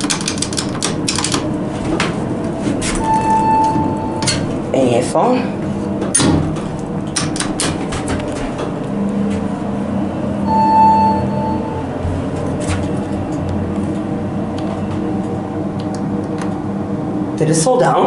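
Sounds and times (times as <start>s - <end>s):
elevator hum: 0.0s - 18.0s
elevator chime: 2.8s - 5.1s, 10.0s - 14.4s.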